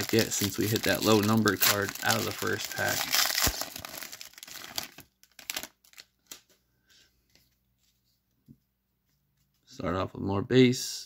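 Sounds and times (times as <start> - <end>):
foil wrapper crinkling and tearing: 0.0 - 6.4.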